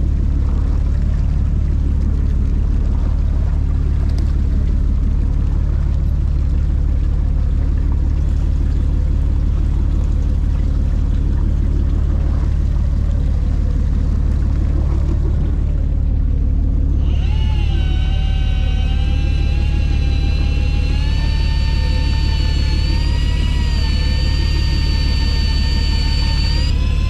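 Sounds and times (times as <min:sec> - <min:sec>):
boat engine humming: 0:00.0 - 0:27.0
high motor whine: 0:09.6 - 0:27.0.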